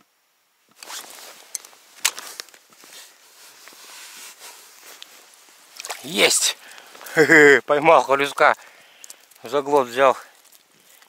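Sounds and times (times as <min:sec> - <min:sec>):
jacket rustling against snow: 0:00.7 - 0:08.3.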